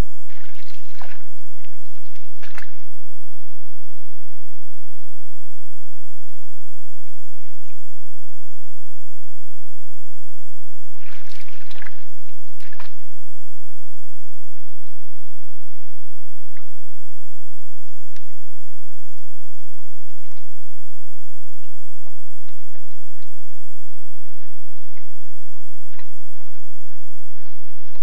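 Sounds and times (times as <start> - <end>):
moose slurping water: 0.3 - 2.9, 11.0 - 13.1.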